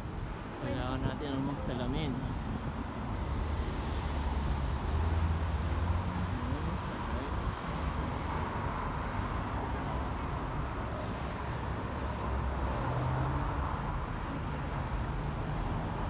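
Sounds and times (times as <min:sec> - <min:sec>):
cars passing by: 0:00.0 - 0:16.0.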